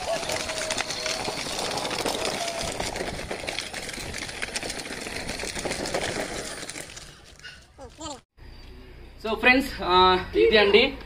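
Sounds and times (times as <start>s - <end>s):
plastic wheels crunching on gravel: 0.0s - 8.2s.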